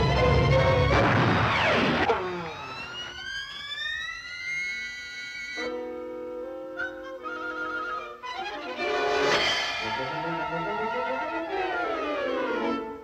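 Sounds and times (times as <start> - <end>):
cartoon orchestral music: 5.6 - 13.0
long rising glide: 9.1 - 12.8
noisy burst with falling tones: 9.2 - 12.7.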